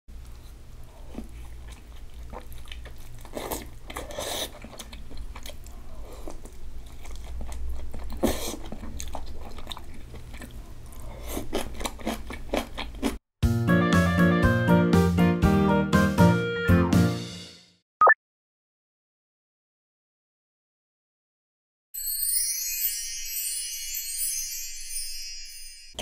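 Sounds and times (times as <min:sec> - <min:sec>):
chewing soft food: 0:00.2 - 0:13.2.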